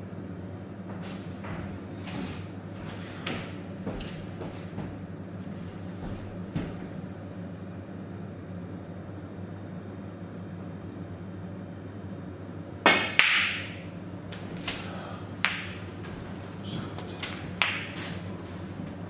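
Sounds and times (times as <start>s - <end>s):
steady low hum: 0.0s - 19.0s
cue tip striking ball: 12.9s - 14.8s, 15.4s - 16.2s, 17.5s - 18.2s
snooker balls clicking: 12.9s - 18.2s.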